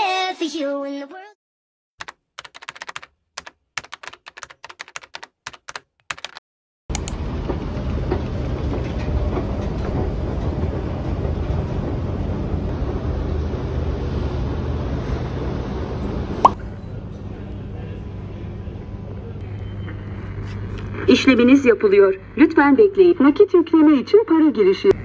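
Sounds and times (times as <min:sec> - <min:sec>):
keyboard-like clicks: 0:02.0 - 0:07.2
loud steady rumble with hum: 0:06.9 - 0:25.0.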